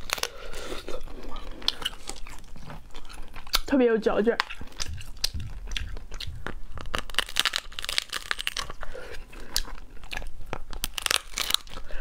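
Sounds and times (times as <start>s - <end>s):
lobster shell cracking: 4.4s - 8.8s, 9.6s - 12.0s.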